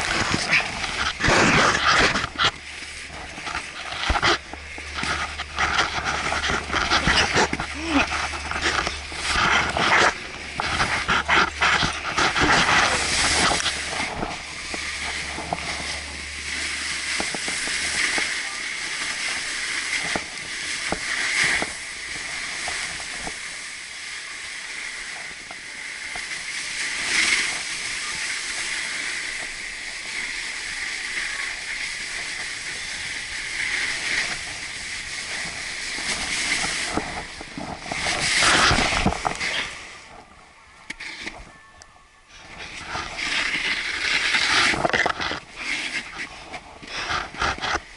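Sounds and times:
wind on microphone: 0.0s - 23.9s
snowboard hissing on snow: 0.0s - 40.0s.

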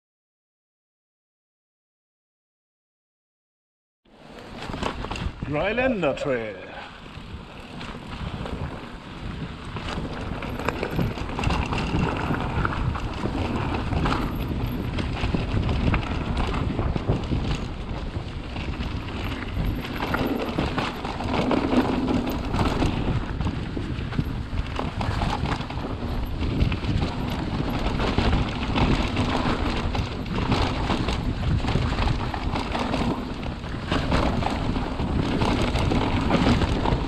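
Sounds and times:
bike tyres and chain clattering: 4.1s - 5.6s, 6.9s - 37.0s
wind buffeting microphone: 4.4s - 37.0s.

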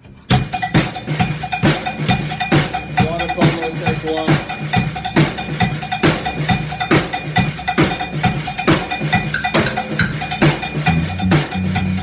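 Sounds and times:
drum kit beating: 0.0s - 12.0s
rock band playing: 0.3s - 12.0s
bass guitar: 9.9s - 12.0s.

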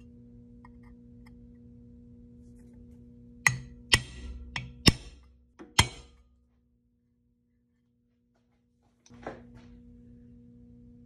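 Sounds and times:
faint steady hum: 0.0s - 11.0s
center punch clicking on metal: 3.5s - 6.1s.

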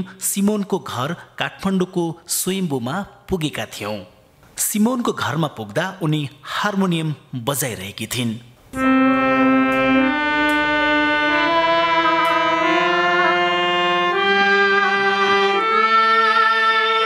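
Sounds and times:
harmonium playing held notes: 8.8s - 17.0s.

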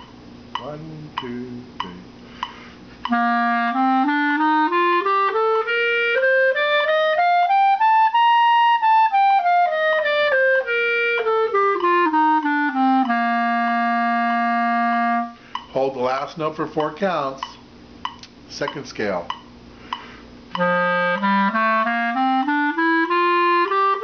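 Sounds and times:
clarinet playing a scale: 0.6s - 16.8s, 20.0s - 24.0s.

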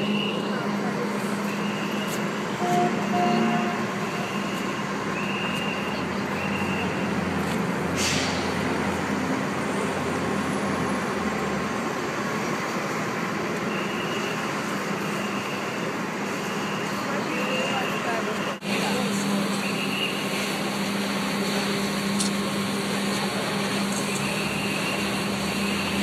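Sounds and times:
city street noise: 0.0s - 26.0s
fire trucks idling: 0.0s - 26.0s
high beep: 1.4s - 7.0s
air hiss: 7.9s - 8.6s.

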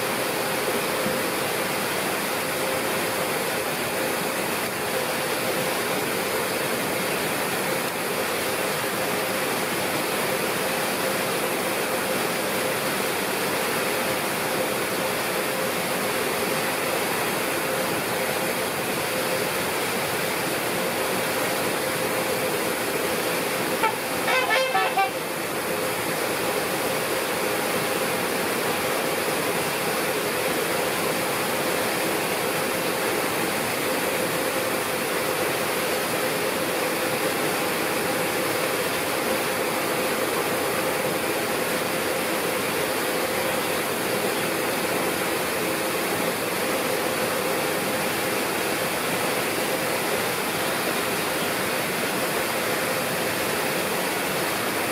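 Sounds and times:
rushing water: 0.0s - 54.9s
horn-like honks: 23.7s - 25.3s.

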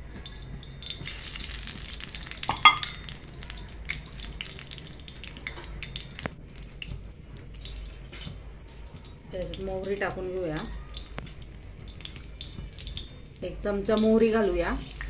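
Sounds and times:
hot oil sizzling and popping: 0.0s - 15.0s
metallic clink: 2.5s - 3.0s.

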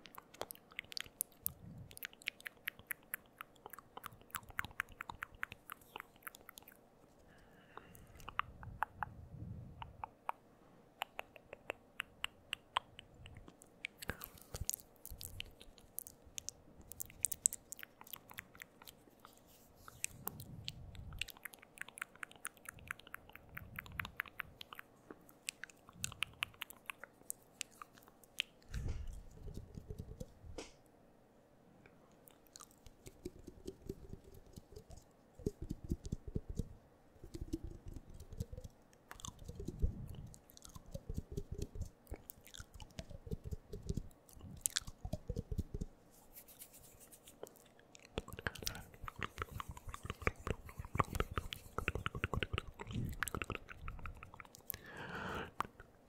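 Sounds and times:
tongue clicks: 0.0s - 6.8s, 7.8s - 10.4s, 11.0s - 30.4s, 32.3s - 46.0s, 47.4s - 56.0s
lip smacks: 0.0s - 30.8s, 32.2s - 56.0s
mouth pops: 7.8s - 10.4s, 11.0s - 18.8s, 19.9s - 30.4s, 32.6s - 45.9s, 48.1s - 55.9s.

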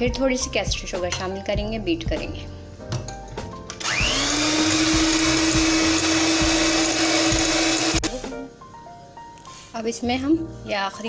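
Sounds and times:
electric hand mixer whirring: 3.8s - 8.3s.

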